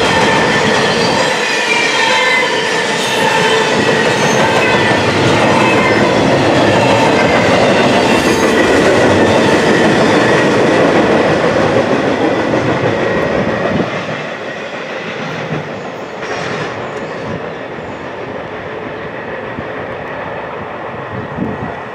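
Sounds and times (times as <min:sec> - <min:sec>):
freight train rolling past: 0:00.0 - 0:21.9.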